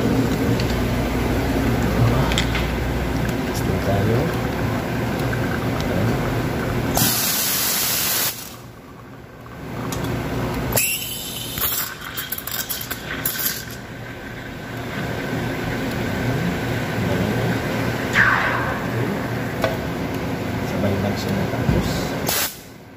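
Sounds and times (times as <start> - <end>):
milk steaming with sputters: 0.1 - 18.2.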